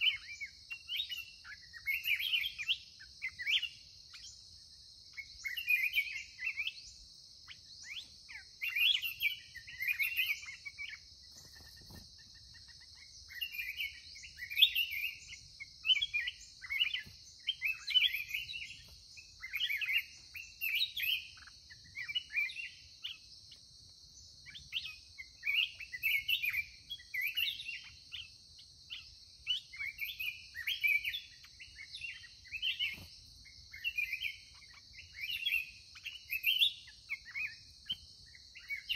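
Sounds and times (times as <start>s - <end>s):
bulbuls singing warbled phrases: 5.2s - 23.2s, 28.9s - 38.9s.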